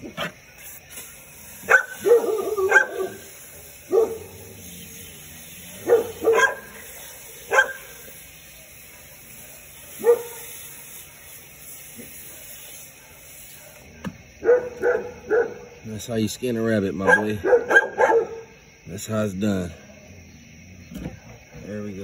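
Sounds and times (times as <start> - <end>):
dog barking: 1.6 - 3.3, 3.9 - 4.4, 5.7 - 8.1, 9.9 - 10.5, 14.4 - 15.7, 17.0 - 18.5.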